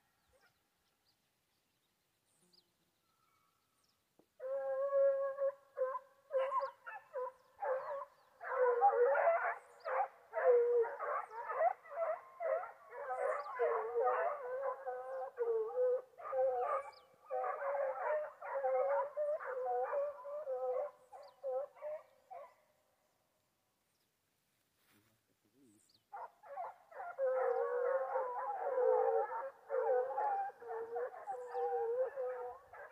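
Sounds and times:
hounds baying and barking: 0:04.4 - 0:22.6, 0:26.1 - 0:32.9.

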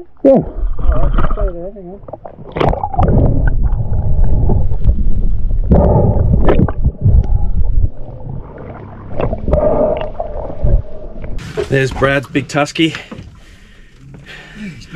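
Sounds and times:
bubbles: 0:00.0 - 0:11.4
water sloshing and gurgling: 0:00.0 - 0:14.5.

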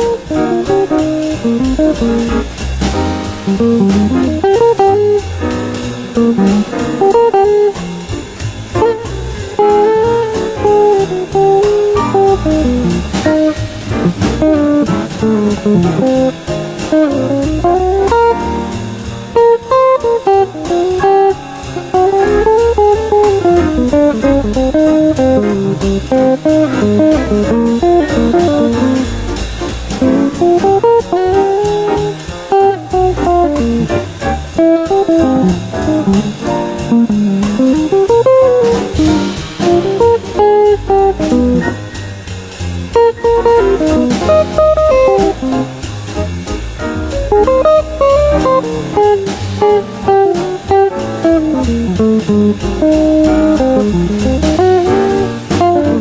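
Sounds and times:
jazz electric guitar: 0:00.0 - 0:56.0.

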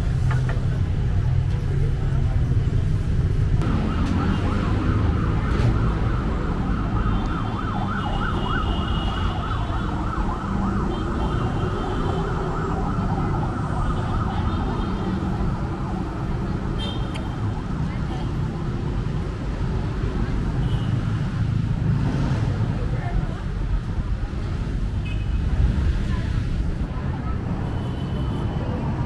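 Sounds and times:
heavy street traffic rumbling: 0:00.0 - 0:29.0
warbling siren: 0:03.6 - 0:16.4.

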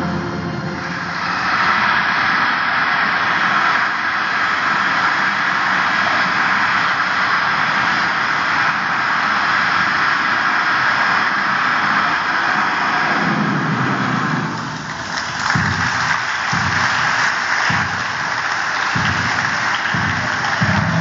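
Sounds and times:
dance music: 0:00.0 - 0:02.2, 0:14.0 - 0:21.0
children cheering: 0:00.7 - 0:21.0
audience clapping: 0:00.8 - 0:21.0.

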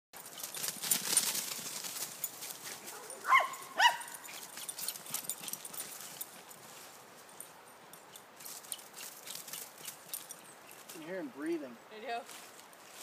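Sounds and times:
dry leaves rustling underfoot: 0:00.2 - 0:07.6, 0:08.4 - 0:11.3, 0:11.9 - 0:13.0
dog barking: 0:02.9 - 0:04.2.

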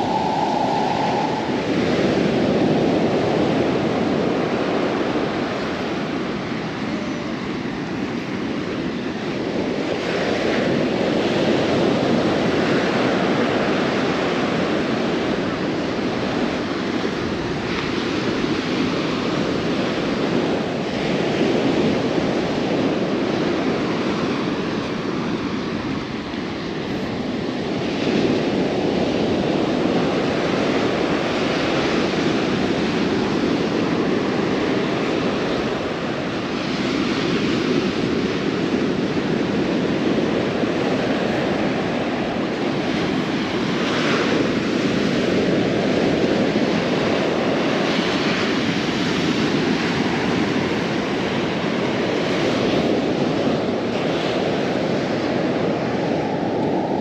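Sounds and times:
wave breaking: 0:00.0 - 0:03.9
ocean waves washing: 0:00.0 - 0:57.0.

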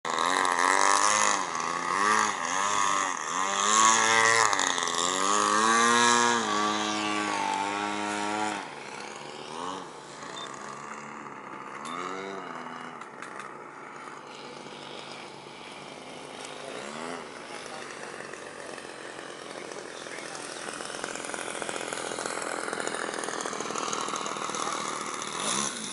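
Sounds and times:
model airplane engine: 0:00.1 - 0:25.9.

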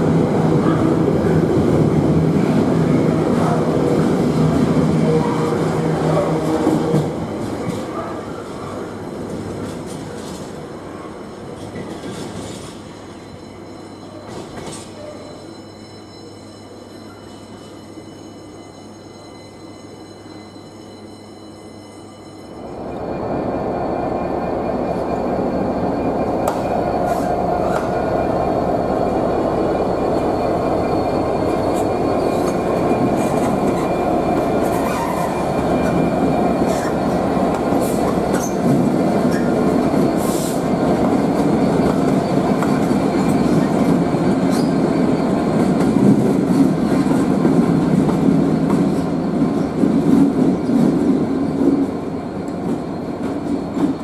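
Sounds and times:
diesel locomotive engines running: 0:22.7 - 0:54.0.

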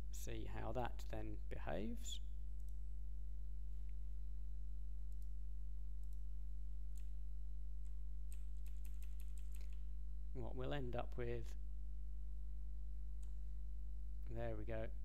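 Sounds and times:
low electrical hum: 0:00.0 - 0:15.0
faint clicks: 0:02.6 - 0:02.8, 0:08.3 - 0:09.9.

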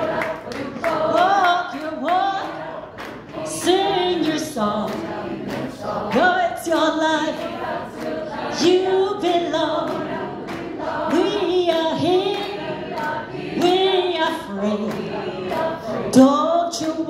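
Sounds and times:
woman singing into a microphone: 0:00.8 - 0:02.7, 0:03.4 - 0:05.1, 0:06.1 - 0:07.6, 0:08.5 - 0:10.1, 0:11.0 - 0:17.0.

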